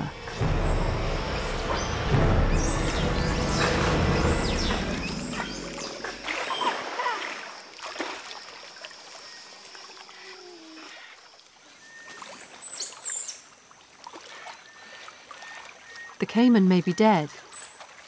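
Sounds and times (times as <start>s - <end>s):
water sloshing and splashing: 0.0s - 18.0s.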